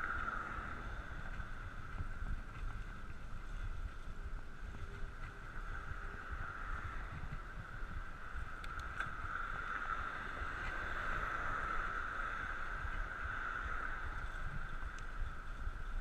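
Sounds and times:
bicycle tyres humming on road: 0.0 - 16.0
wind rumbling on microphone: 0.0 - 16.0
faint clicks: 8.4 - 11.0, 14.2 - 16.0.

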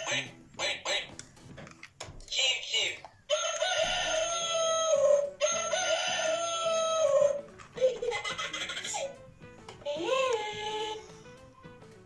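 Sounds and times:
laugh-like electronic sound: 3.8 - 9.2.

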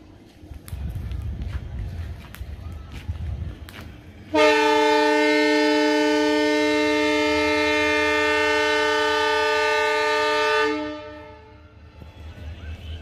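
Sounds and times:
locomotive horn blast: 4.3 - 13.0.

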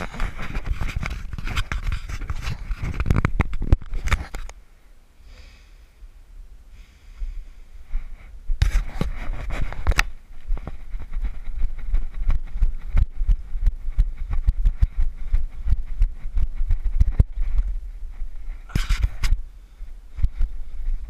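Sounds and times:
wind buffeting microphone: 8.3 - 21.0.

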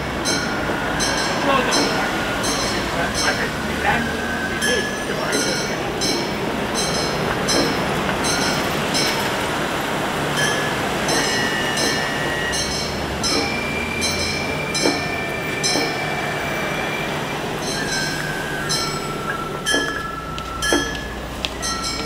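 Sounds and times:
street traffic noise: 0.0 - 22.0
flute notes: 11.1 - 22.0.

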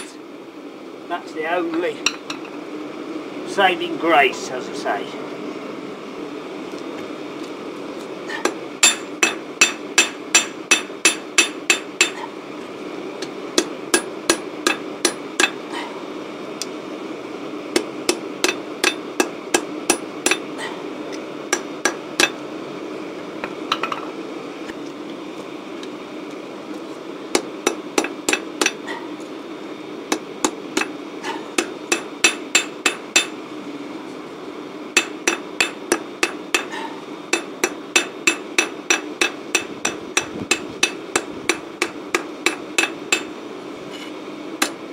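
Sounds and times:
hammer striking hot steel: 8.3 - 12.3, 13.2 - 15.9, 17.7 - 20.5, 21.5 - 22.4, 27.3 - 29.0, 30.1 - 33.4, 35.0 - 43.4, 44.6 - 44.8.

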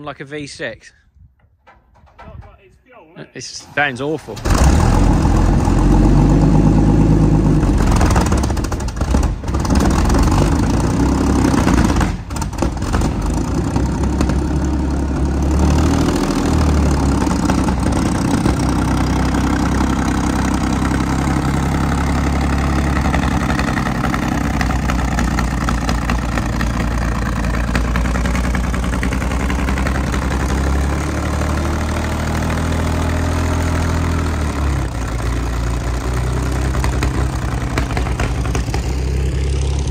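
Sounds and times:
engine running roughly: 4.4 - 39.9.

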